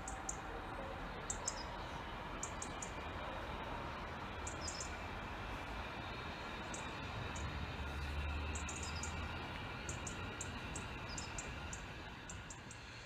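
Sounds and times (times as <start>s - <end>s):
small bird chirping: 1.3s - 1.7s, 4.5s - 4.9s, 9.9s - 12.9s.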